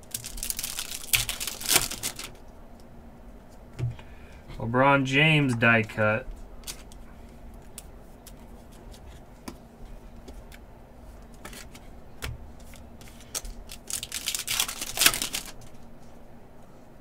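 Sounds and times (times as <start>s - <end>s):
wrapper crinkling: 0.0s - 2.4s, 6.6s - 7.0s, 12.7s - 15.8s.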